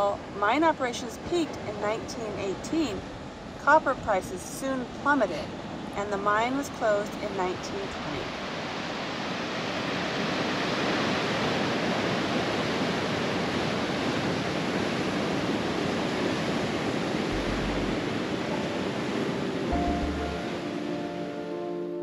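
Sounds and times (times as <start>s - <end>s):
soft music notes: 17.3s - 22.0s.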